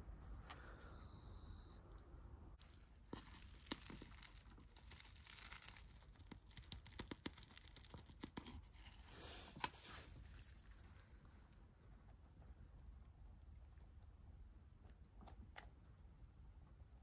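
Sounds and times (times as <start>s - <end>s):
soil trickling into pot: 2.6s - 11.0s.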